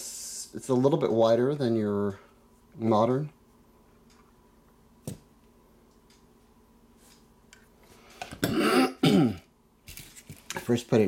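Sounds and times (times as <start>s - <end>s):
man clearing throat: 8.4s - 9.5s.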